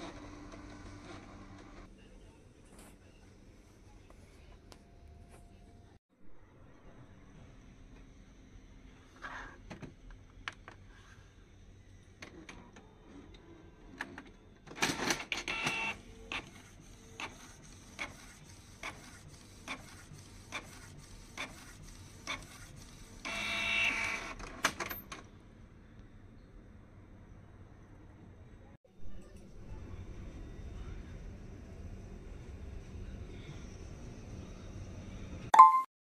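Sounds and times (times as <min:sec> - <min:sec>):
printer motor whirring: 0:15.4 - 0:24.4.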